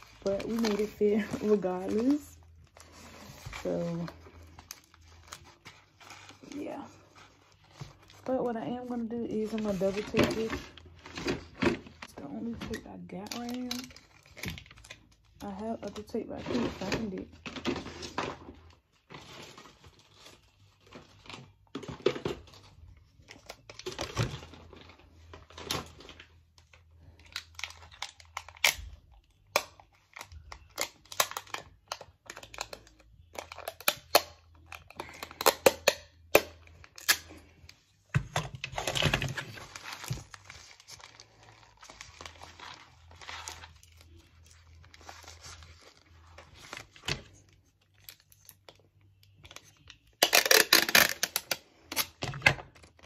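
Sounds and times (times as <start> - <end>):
packaging crinkling and clicks: 20.0 - 37.5
adhesive tape tearing: 50.2 - 52.1.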